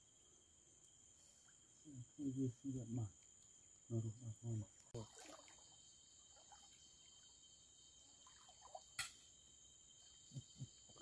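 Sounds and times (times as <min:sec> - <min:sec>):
night insects chorus: 0:00.0 - 0:11.0.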